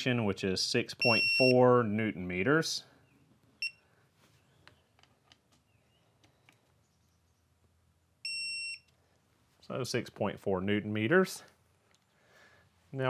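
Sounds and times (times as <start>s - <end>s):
high electronic beep: 1.0s - 1.6s.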